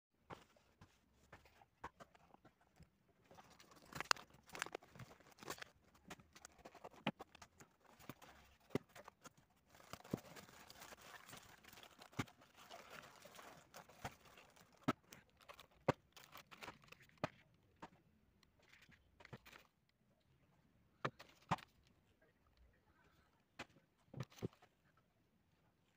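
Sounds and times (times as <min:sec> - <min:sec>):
paper wrapping rustling: 0:03.3 - 0:17.2.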